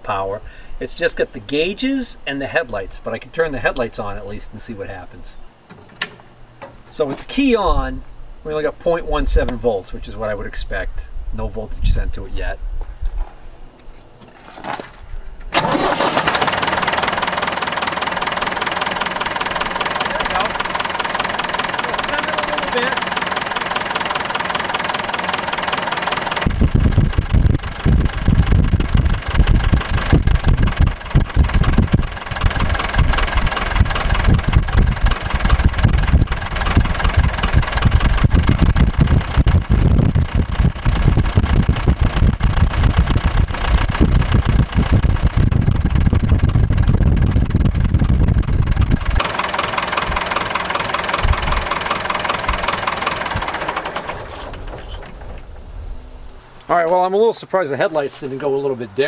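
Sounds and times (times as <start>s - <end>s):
tractor diesel engine idling: 15.5s - 55.6s.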